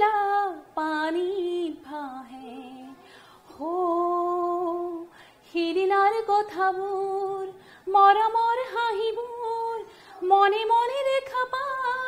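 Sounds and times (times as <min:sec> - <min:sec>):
woman singing unaccompanied: 0:00.0 - 0:12.0.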